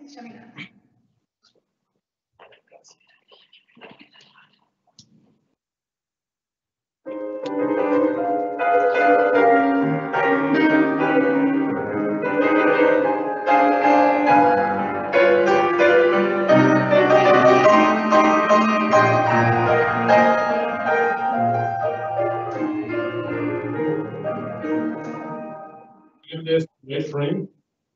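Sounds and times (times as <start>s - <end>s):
grand piano chords: 7.1s - 26.5s.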